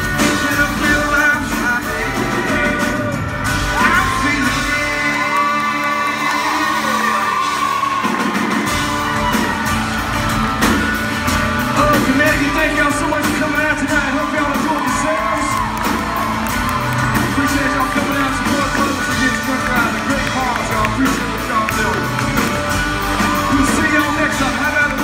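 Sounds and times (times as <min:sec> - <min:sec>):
man singing lead vocal: 0:00.0 - 0:08.1, 0:11.7 - 0:15.6, 0:17.2 - 0:22.6, 0:23.4 - 0:25.0
drums beat: 0:00.0 - 0:25.0
electric guitars: 0:00.0 - 0:25.0
live country band: 0:00.0 - 0:25.0.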